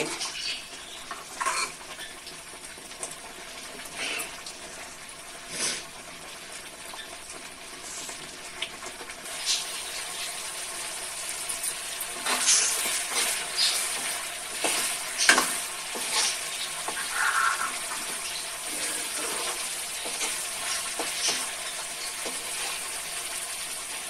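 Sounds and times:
spice paste sizzling in oil: 0.0s - 24.0s
steel ladle scraping pan: 12.1s - 21.5s.

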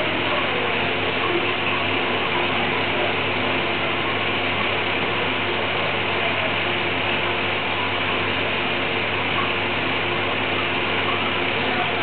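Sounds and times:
machine hissing and humming: 0.0s - 12.0s.

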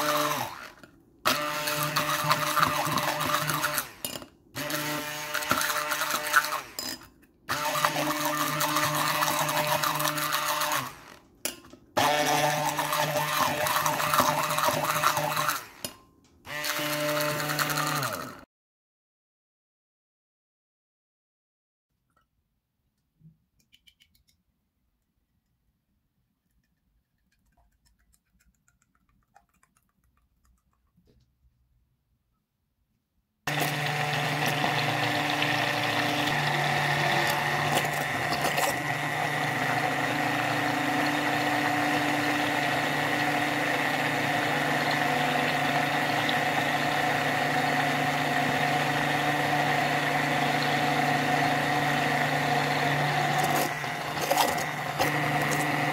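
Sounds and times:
stick blender running: 0.0s - 11.3s, 12.0s - 18.5s, 33.5s - 55.9s
faint small sounds: 22.0s - 33.1s.

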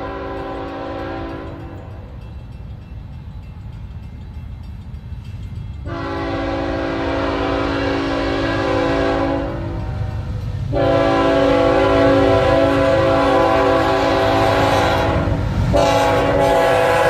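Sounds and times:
train horn blasts: 0.0s - 2.0s, 5.8s - 17.0s
low train rumble: 0.0s - 17.0s.

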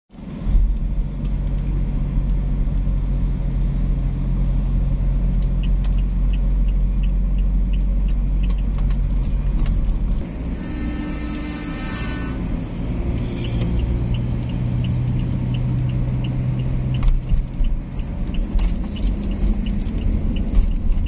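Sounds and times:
car engine and tyre rumble: 0.1s - 21.0s
light regular ticking: 5.3s - 10.0s, 13.1s - 21.0s.

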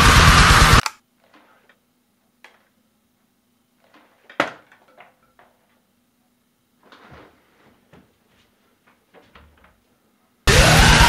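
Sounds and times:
knocks and bumps of handling things: 3.8s - 5.8s.

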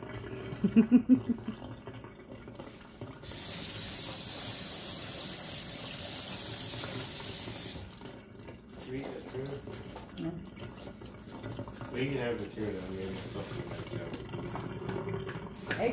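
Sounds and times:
faucet water hissing: 2.4s - 8.2s.

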